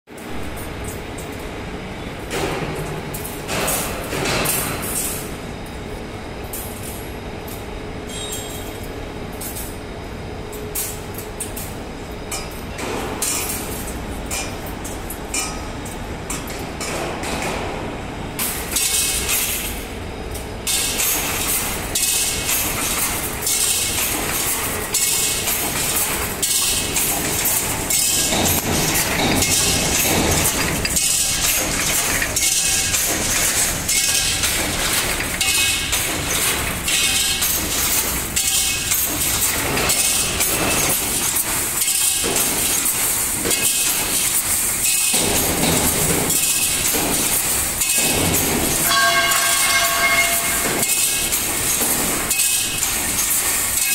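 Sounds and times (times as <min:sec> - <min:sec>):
welding machine metallic clanking: 0:18.4 - 0:53.9.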